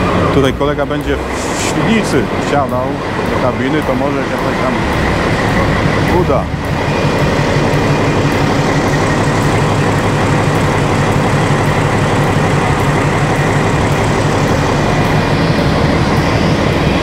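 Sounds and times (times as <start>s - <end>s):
diesel locomotive engine idling: 0.0s - 17.0s.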